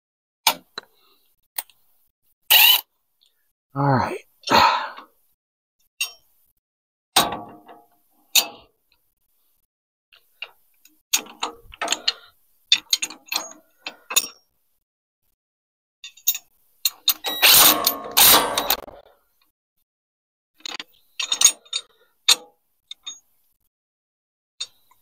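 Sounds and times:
hand tool clicking on metal bolt: 0:16.2 - 0:18.9, 0:20.6 - 0:23.2.

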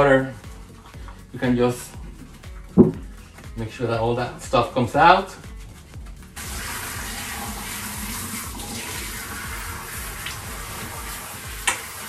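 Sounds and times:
water spraying on wet dog: 0:06.4 - 0:12.0.

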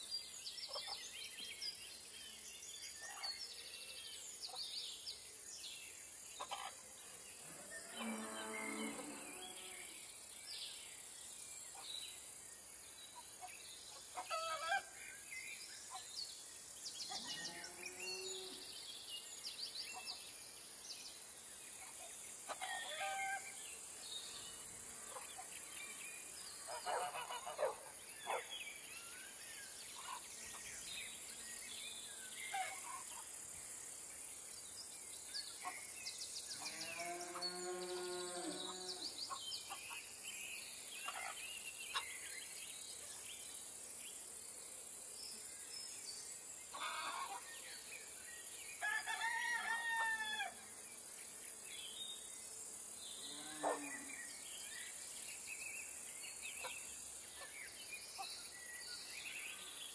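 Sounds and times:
steady high hiss: 0:27.9 - 0:36.6.

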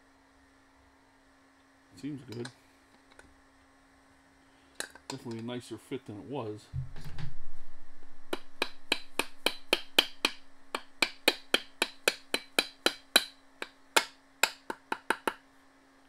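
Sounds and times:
rapid light hammer taps: 0:08.3 - 0:15.4.

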